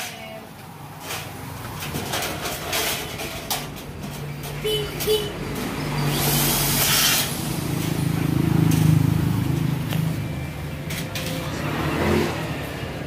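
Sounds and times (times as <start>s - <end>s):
power drill on metal: 6.0s - 7.4s.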